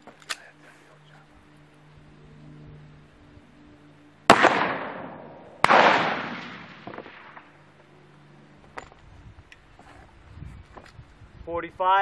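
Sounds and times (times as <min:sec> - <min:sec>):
pistol shot: 0:04.3 - 0:07.5.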